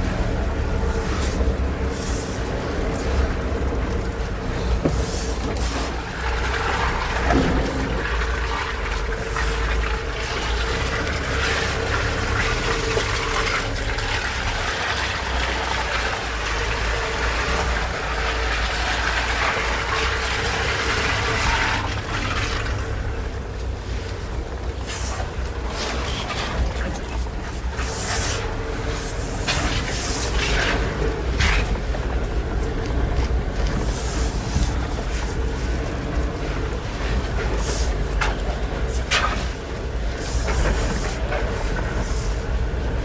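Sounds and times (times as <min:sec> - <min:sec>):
car engine rumble: 0:00.0 - 0:43.0
tyre and road noise: 0:00.0 - 0:43.0.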